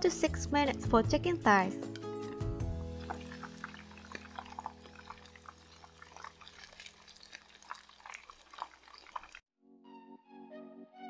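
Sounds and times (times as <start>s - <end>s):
fried chicken crackling: 3.0s - 9.4s.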